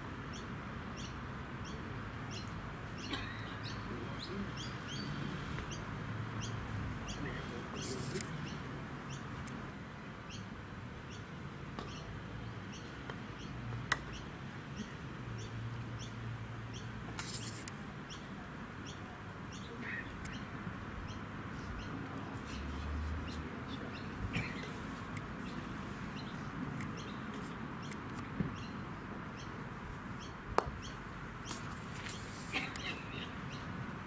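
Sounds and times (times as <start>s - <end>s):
outdoor background noise: 0.0s - 34.0s
bird chirping: 25.4s - 29.6s.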